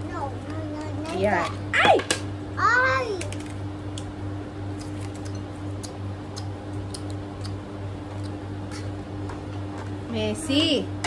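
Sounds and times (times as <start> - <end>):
electric fan humming: 0.0 - 11.0
person chewing: 4.7 - 9.0.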